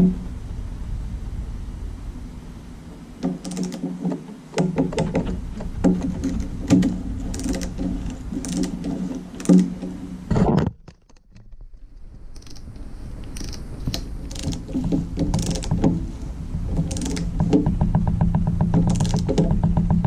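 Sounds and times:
hand ratchet clicking: 0:03.2 - 0:04.0, 0:06.0 - 0:09.9, 0:12.4 - 0:16.0, 0:16.7 - 0:17.5, 0:18.8 - 0:19.5.

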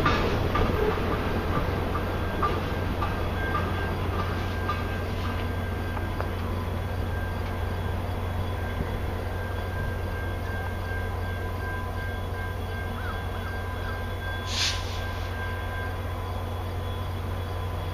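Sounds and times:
diesel locomotive idling: 0:00.0 - 0:17.9
short hiss: 0:14.5 - 0:15.4.

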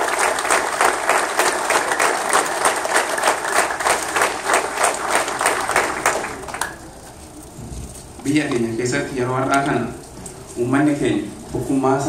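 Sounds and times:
audience clapping in unison: 0:00.0 - 0:06.9.

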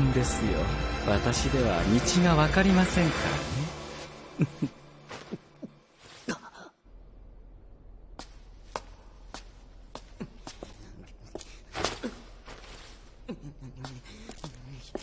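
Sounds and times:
footsteps on hard floor: 0:13.8 - 0:15.0.

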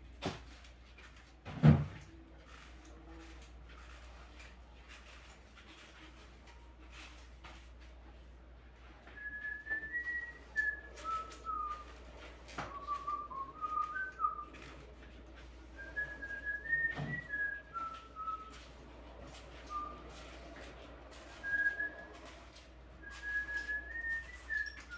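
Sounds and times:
person whistling a tune: 0:09.1 - 0:11.9, 0:12.6 - 0:14.6, 0:15.8 - 0:18.6, 0:21.3 - 0:22.3, 0:23.0 - 0:24.9.

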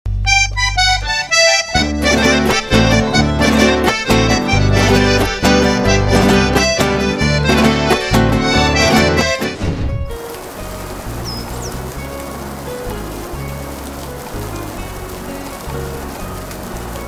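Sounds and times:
instrumental theme music: 0:00.1 - 0:17.0.

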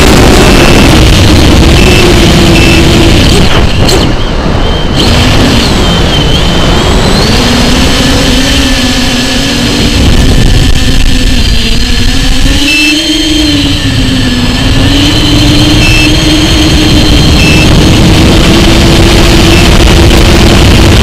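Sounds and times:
electric motor and propeller whine: 0:00.0 - 0:21.0
wind rushing on microphone: 0:00.0 - 0:21.0.

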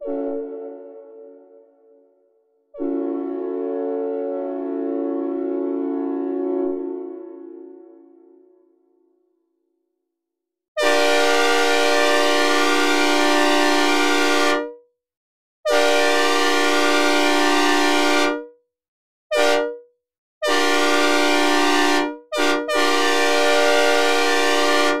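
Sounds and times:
train horn blasts: 0:00.0 - 0:01.5, 0:02.8 - 0:08.4, 0:10.8 - 0:14.8, 0:15.7 - 0:18.5, 0:19.3 - 0:19.8, 0:20.4 - 0:25.0.

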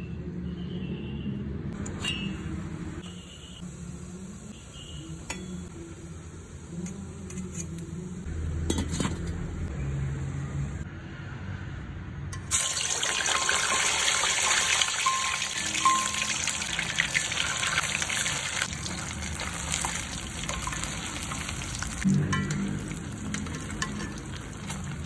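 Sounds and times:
food sizzling in hot oil: 0:03.0 - 0:08.9, 0:12.4 - 0:25.0.

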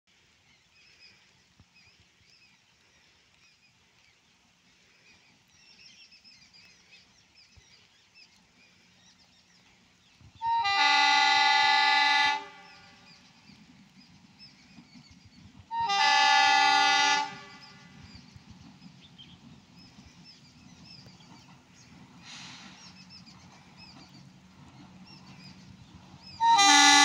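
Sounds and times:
locomotive horn blast: 0:10.4 - 0:13.0, 0:15.7 - 0:17.7, 0:26.4 - 0:27.0.

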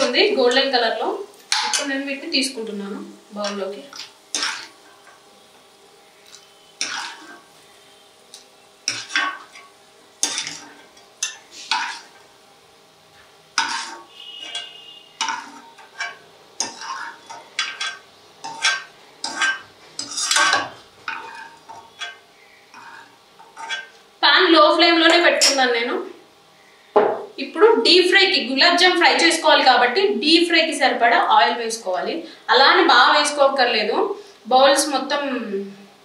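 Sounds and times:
ladle scraping a pan: 0:04.0 - 0:05.2, 0:06.3 - 0:07.5, 0:08.8 - 0:12.3, 0:13.6 - 0:24.0.

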